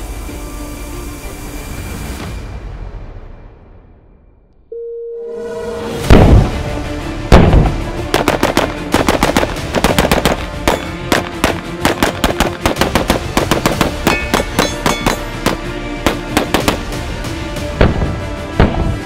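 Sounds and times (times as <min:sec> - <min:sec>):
background music: 0:00.0 - 0:19.0
loud booming hits: 0:06.0 - 0:08.0, 0:17.7 - 0:19.0
rapid gunshots: 0:07.3 - 0:17.0.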